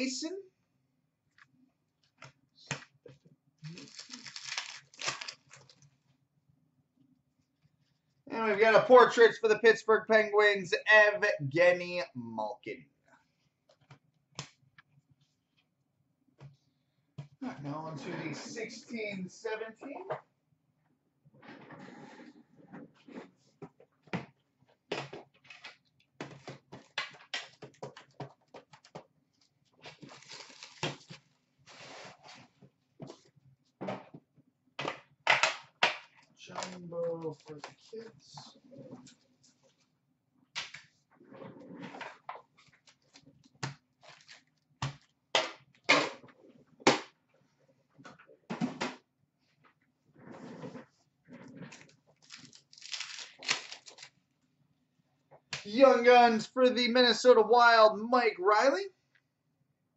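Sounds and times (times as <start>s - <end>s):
card packs rustling: 3.7s - 5.8s, 29.8s - 32.3s, 44.0s - 44.6s, 51.7s - 54.2s.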